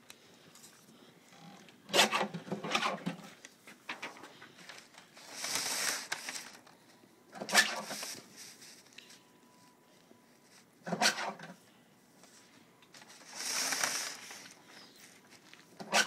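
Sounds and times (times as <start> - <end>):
paper rustle: 3.2 - 9.2, 12.2 - 15.8.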